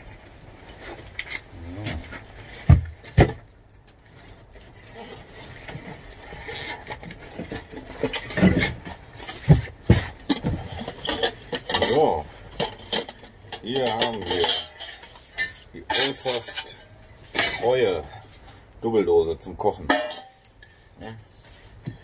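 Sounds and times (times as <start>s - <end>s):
metal tin clinking and knocking: 6.7s - 17.9s, 19.8s - 20.5s.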